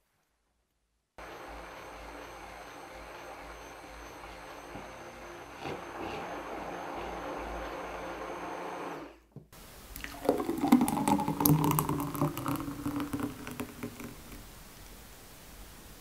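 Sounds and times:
blender running: 0:01.2 - 0:09.2, 0:10.0 - 0:14.4
milkshake pouring into glass: 0:09.8 - 0:14.5.

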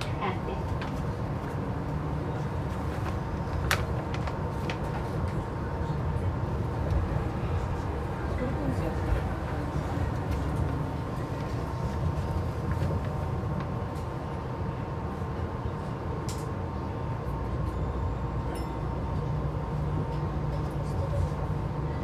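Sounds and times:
monorail car rumbling: 0:00.0 - 0:22.0.

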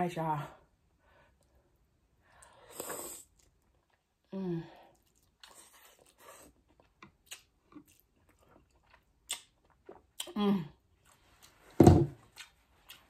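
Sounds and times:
wet chewing: 0:04.9 - 0:10.4, 0:12.2 - 0:13.0.

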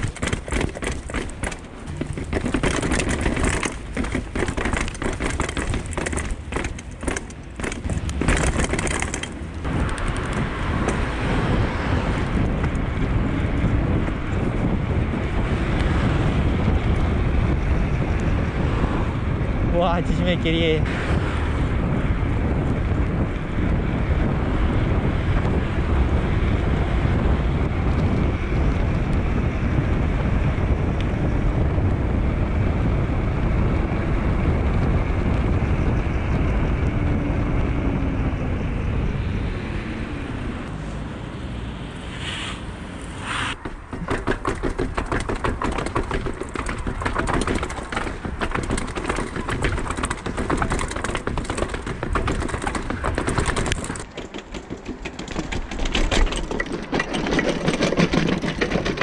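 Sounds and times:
bike ticking rattle: 0:00.0 - 0:11.6, 0:43.6 - 0:59.0
wind rushing over microphone: 0:00.0 - 0:54.2
bike tyre noise: 0:00.0 - 0:59.0.

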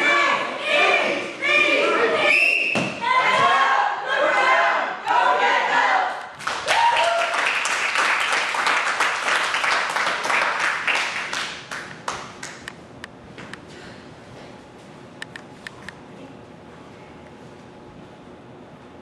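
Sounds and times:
small group clapping: 0:06.1 - 0:12.8.

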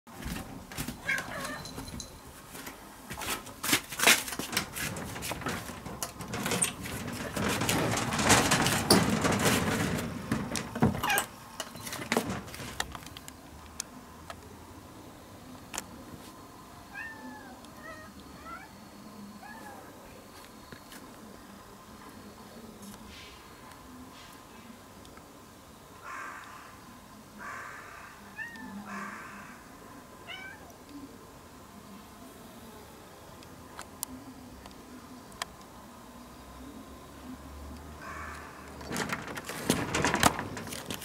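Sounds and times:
rustling: 0:00.1 - 0:13.3, 0:38.1 - 0:41.0
cat meowing: 0:01.0 - 0:01.7
close knocks: 0:04.1 - 0:13.0.

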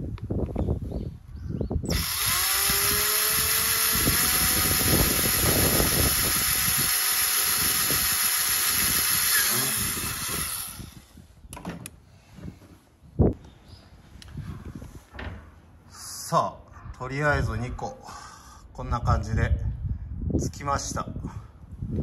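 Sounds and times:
cordless drill whining: 0:01.9 - 0:11.2.

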